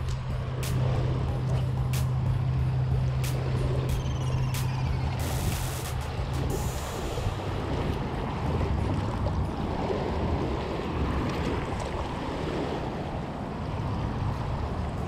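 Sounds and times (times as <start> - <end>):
wind buffeting microphone: 0.0 - 15.0
waves lapping against rocks: 5.2 - 15.0.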